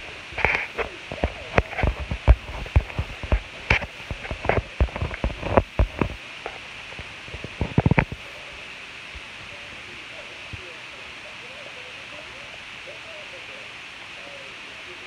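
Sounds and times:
sharp clicks and knocks: 0.4 - 8.2.

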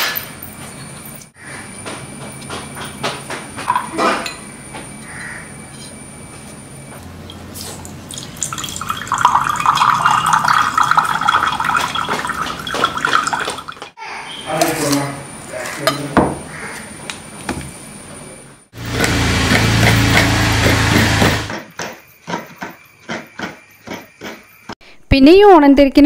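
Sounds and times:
water pouring into a glass: 8.1 - 13.8.

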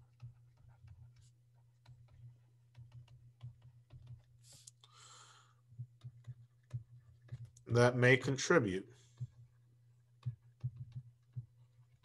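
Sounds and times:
stylus tapping on tablet screen: 0.0 - 4.7, 5.7 - 7.6, 10.1 - 12.0.

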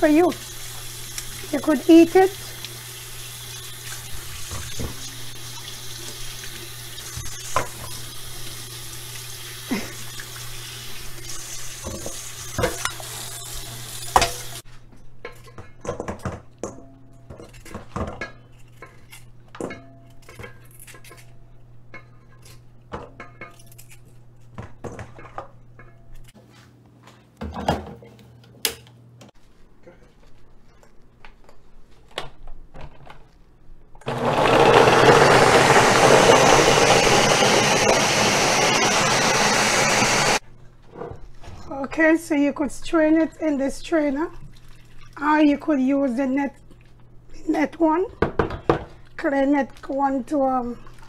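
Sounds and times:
tap water running: 0.0 - 14.6, 34.0 - 40.4.

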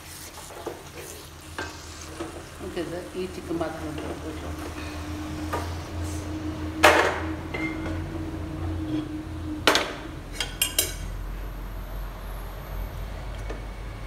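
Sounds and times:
pots and utensils clanking: 6.8 - 8.1, 8.7 - 11.2.

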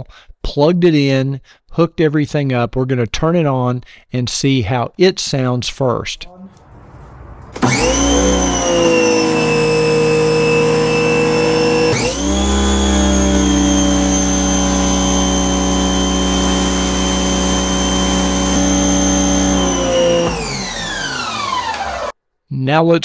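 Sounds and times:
pressure washer motor whine: 6.9 - 22.2.

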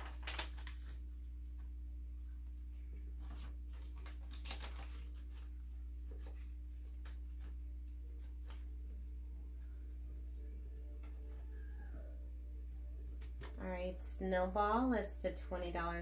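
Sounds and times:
paper bills rustling: 0.0 - 1.2, 3.1 - 8.8
steady low hum: 0.0 - 16.0.

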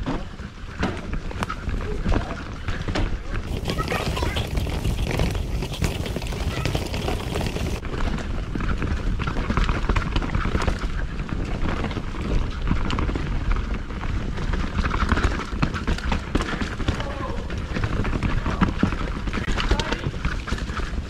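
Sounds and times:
wind buffeting microphone: 3.4 - 8.6
bike clattering over bumps: 3.5 - 7.8
tyres rumbling over dirt: 3.5 - 7.9.

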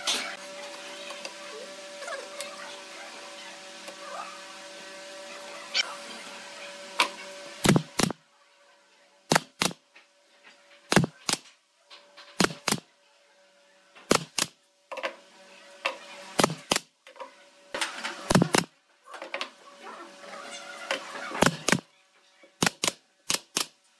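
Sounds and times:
pneumatic nailer firing: 7.0 - 8.2, 9.3 - 9.8, 10.9 - 11.5, 12.3 - 12.8, 14.1 - 14.6, 16.4 - 16.9, 17.8 - 18.7, 21.3 - 21.9, 22.6 - 23.9.

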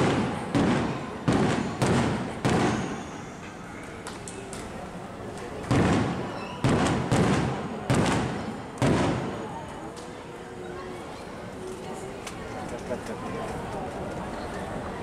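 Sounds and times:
fireworks booming: 0.0 - 3.4, 5.5 - 9.6.

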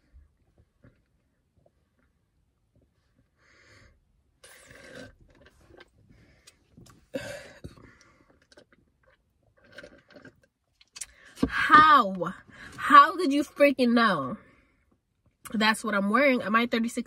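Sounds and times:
sipping through a straw: 4.4 - 6.6
chewing: 7.9 - 11.2.

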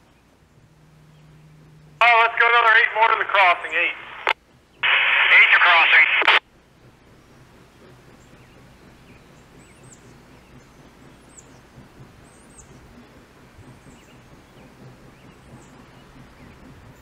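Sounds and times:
faint low hum: 0.0 - 6.4.

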